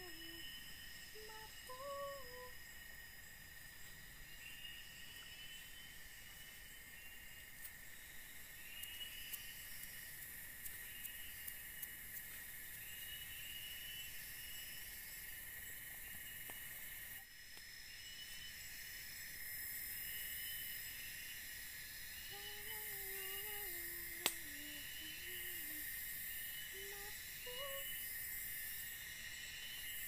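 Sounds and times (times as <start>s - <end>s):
forest insects chirring: 0.0s - 30.0s
low wavering call: 22.3s - 25.8s, 26.7s - 28.0s.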